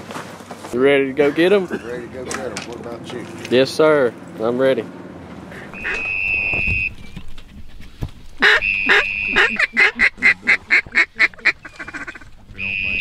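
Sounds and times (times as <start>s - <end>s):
duck call quacks: 5.5s - 6.6s, 8.4s - 13.0s.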